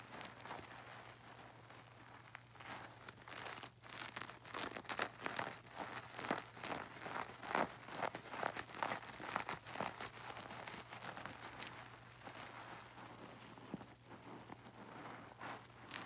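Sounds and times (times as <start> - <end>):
wet squishing of soapy pouf: 0.1 - 16.0.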